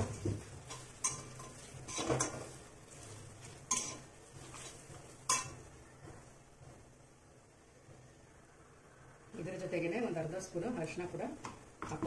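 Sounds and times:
spatula scraping metal pan: 0:00.0 - 0:05.6.

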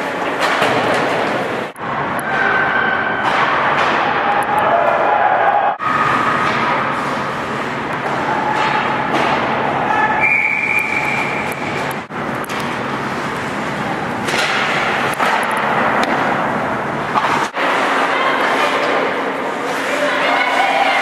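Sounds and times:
skates and sticks on ice: 0:10.8 - 0:21.0.

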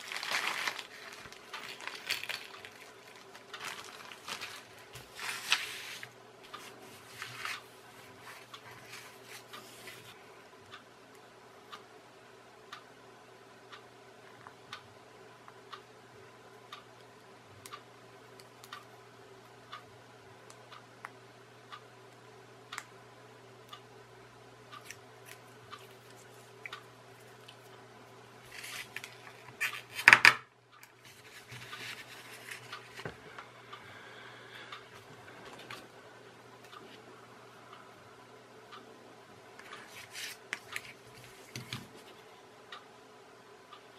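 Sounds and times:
crackly plastic rustle: 0:00.0 - 0:10.2, 0:28.5 - 0:30.0.

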